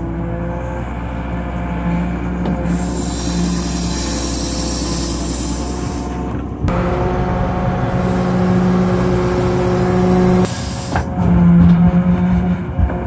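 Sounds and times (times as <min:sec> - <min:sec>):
excavator diesel engine running: 0:00.0 - 0:13.0
bucket working snow: 0:02.6 - 0:11.1.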